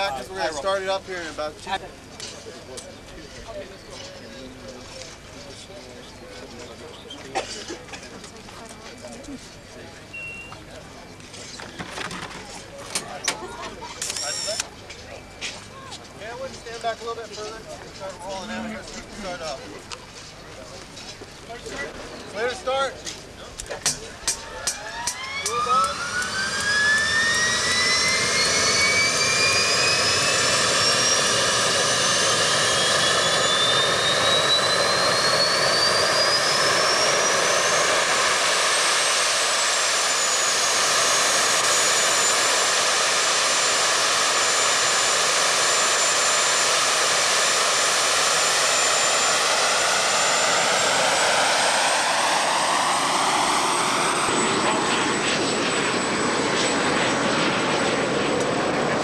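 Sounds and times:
turbojet whine spooling up: 0:14.0 - 0:15.2, 0:23.9 - 0:59.0.

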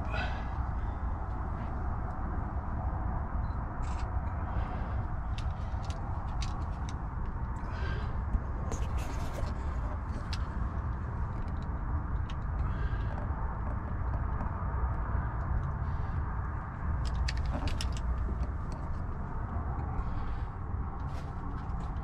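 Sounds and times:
camera handling rumble: 0:03.8 - 0:04.4, 0:05.2 - 0:14.5, 0:16.9 - 0:20.0
light clicks and scrapes: 0:03.8 - 0:14.5, 0:17.0 - 0:20.3.

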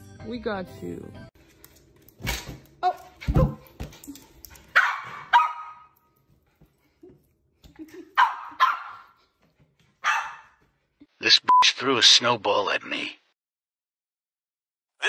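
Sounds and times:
small dog barking: 0:04.7 - 0:06.0, 0:08.2 - 0:09.2, 0:10.0 - 0:10.6.

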